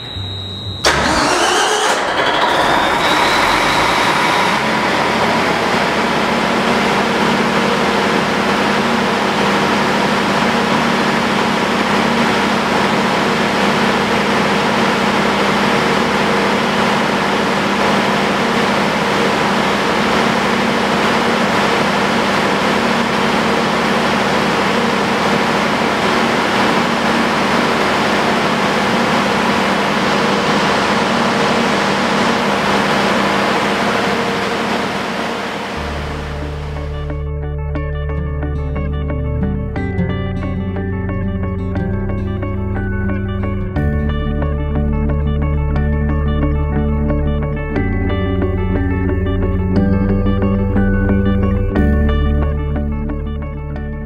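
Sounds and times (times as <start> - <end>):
diesel generator drone: 0.0 - 54.0.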